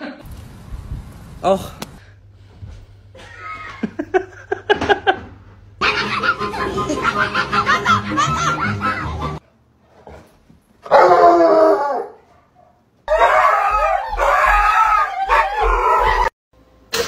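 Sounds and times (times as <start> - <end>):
dogs howling: 10.9 - 12.2, 13.1 - 16.3.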